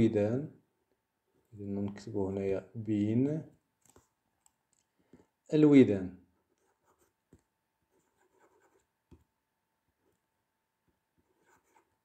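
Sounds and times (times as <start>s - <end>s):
pen scratching on paper: 6.5s - 9.0s, 11.2s - 12.0s.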